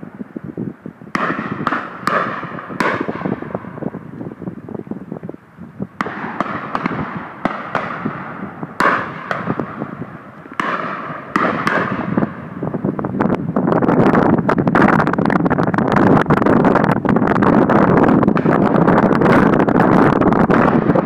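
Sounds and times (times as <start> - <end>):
shotguns firing with echo: 1.1 - 4.0, 6.0 - 12.6, 20.5 - 21.0.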